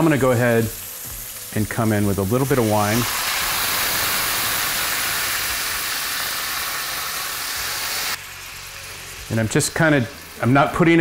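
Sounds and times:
wine hissing and sizzling in a pan: 0.0 - 11.0.

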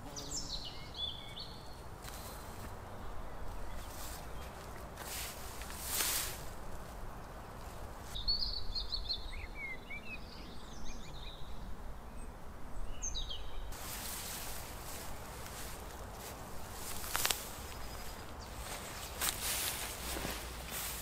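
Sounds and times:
small birds chirping: 0.0 - 21.0
footsteps swishing through grass: 2.0 - 8.2, 13.7 - 21.0.

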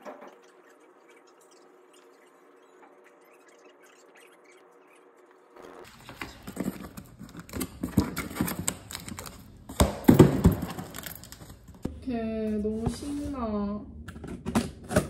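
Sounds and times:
cardboard parcels knocking and scuffing: 9.7 - 11.1.

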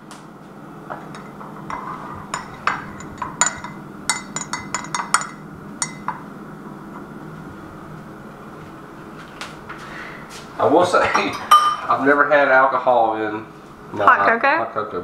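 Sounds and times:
spoon clinking in ceramic mug: 1.2 - 6.2, 11.2 - 11.8.

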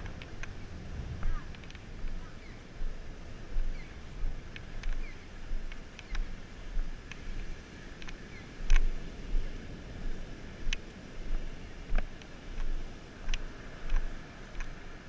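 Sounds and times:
surf hiss: 0.0 - 15.0
wind buffeting microphone: 0.0 - 15.0
faint clicks: 1.2 - 2.2, 5.7 - 6.3, 7.0 - 8.9, 11.9 - 14.8.

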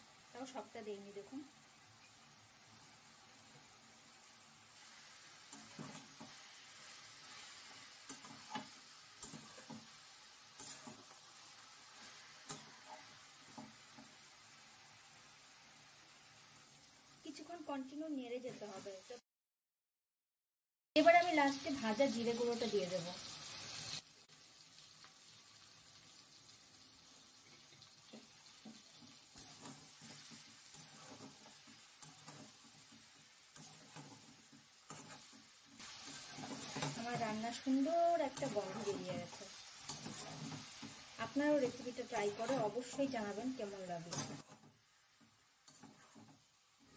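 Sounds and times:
soft sizzle: 0.0 - 19.2, 21.0 - 46.9
spatula scraping metal pan: 29.0 - 37.7, 38.3 - 43.4, 44.0 - 44.7, 45.6 - 46.9
spatula scraping steel pan: 44.0 - 44.6, 45.7 - 46.4.

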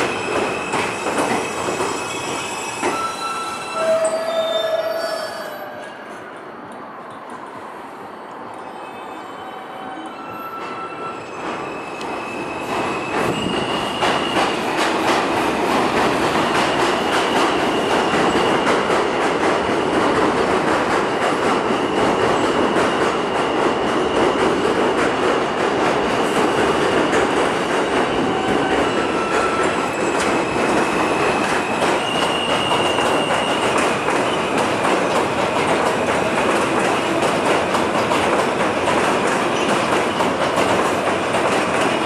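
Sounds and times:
train wheels squealing: 0.0 - 6.4, 8.5 - 14.9, 16.2 - 20.2, 21.6 - 24.8, 27.3 - 35.6, 39.4 - 40.6.

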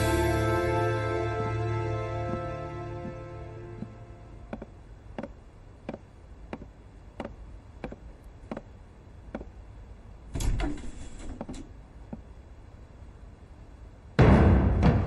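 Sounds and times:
footsteps on wooden floor: 3.8 - 6.0
heavy wooden door opening: 10.4 - 11.7.

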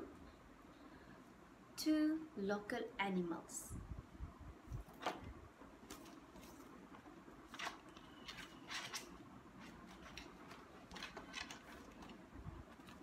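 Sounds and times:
rustling and handling noises: 4.6 - 13.0.

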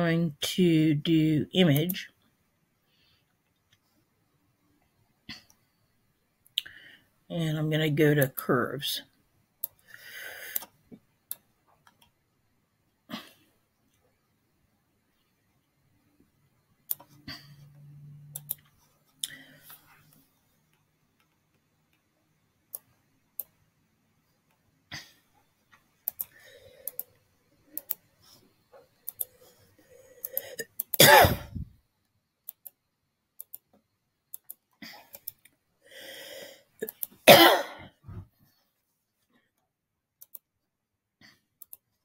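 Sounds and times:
computer mouse clicking: 9.6 - 9.8, 16.9 - 17.2, 18.3 - 19.4, 22.7 - 23.6, 26.0 - 28.1, 29.0 - 29.4, 30.2 - 31.0, 32.4 - 32.8, 33.4 - 35.6, 36.8 - 37.2, 40.2 - 40.5, 41.6 - 41.9
person coughing: 31.0 - 31.6, 37.3 - 37.9.

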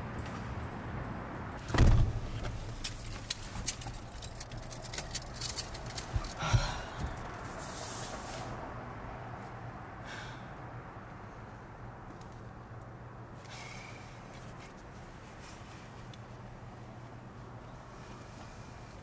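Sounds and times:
dull thump: 1.6 - 2.6
clicks and rustling: 1.7 - 6.4
person sighing: 6.4 - 7.0.

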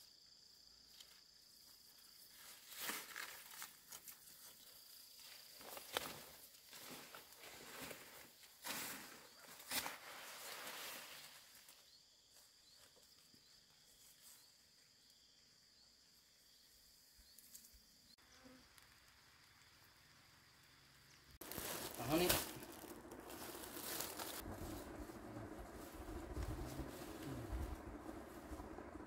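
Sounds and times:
leaves and grass rustling: 0.8 - 14.9, 21.1 - 29.0
faint insect trilling: 10.4 - 28.9.

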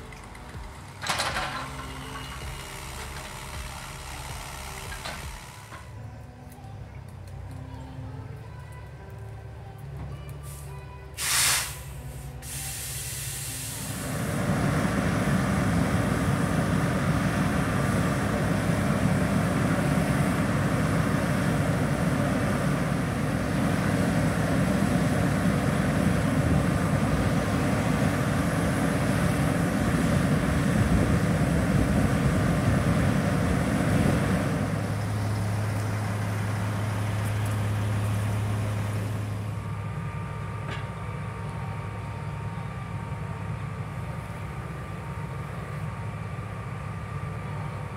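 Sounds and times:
low machine hum: 0.0 - 11.2
drilling rig machinery rumble: 0.0 - 47.9.

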